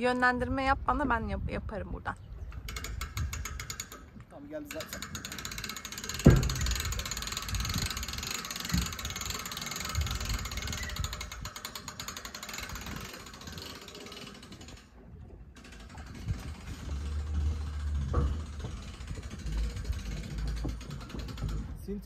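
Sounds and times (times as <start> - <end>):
winch ratchet clicking: 2.5 - 15.0, 15.6 - 21.9
dull knocks: 6.2 - 6.8.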